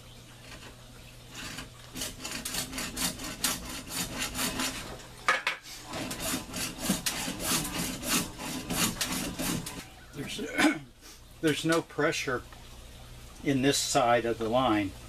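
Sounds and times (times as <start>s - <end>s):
hacksaw cutting plastic pipe: 1.4s - 5.0s, 5.8s - 9.8s.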